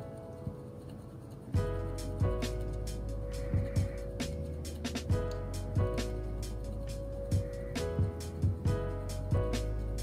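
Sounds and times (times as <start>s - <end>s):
instrumental music with beat: 0.0s - 10.0s.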